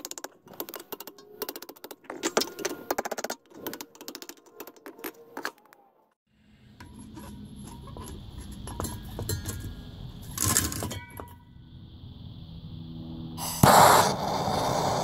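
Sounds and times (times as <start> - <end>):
gas torch hissing: 13.4 - 15.0.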